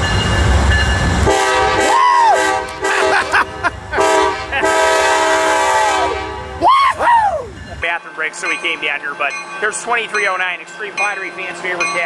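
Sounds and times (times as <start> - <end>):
diesel locomotive horn: 1.2 - 6.6.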